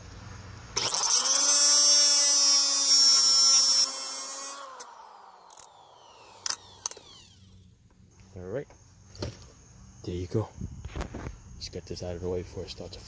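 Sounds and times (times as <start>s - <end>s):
cutoff wheel grinding metal: 0.8s - 7.6s.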